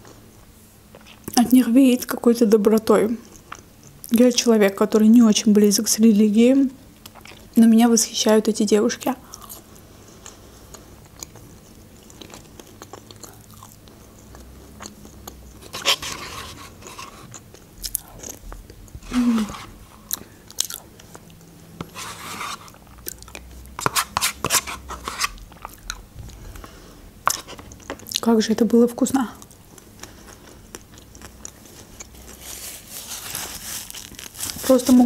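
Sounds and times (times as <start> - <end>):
chewing: 7.0 - 7.5, 9.3 - 18.8, 29.4 - 32.5.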